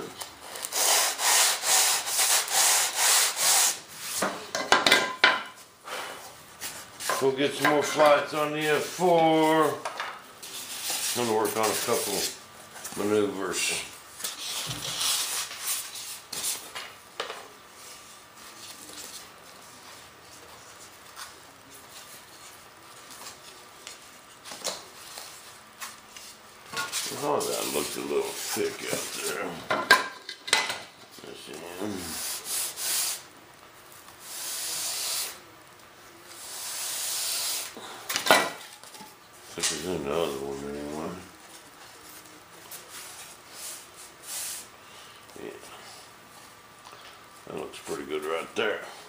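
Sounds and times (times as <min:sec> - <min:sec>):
sanding bar scraping foam edge: 0:00.5 - 0:04.2, 0:32.0 - 0:33.2, 0:34.2 - 0:35.4, 0:36.4 - 0:37.7.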